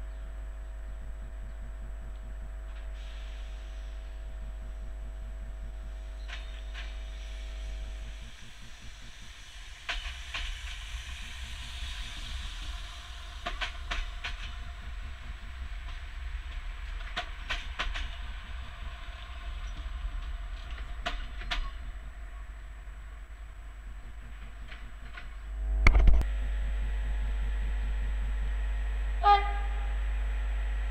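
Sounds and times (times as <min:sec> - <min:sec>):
train rumbling past: 0:00.0 - 0:25.8
hiss: 0:02.9 - 0:04.9, 0:05.8 - 0:22.4.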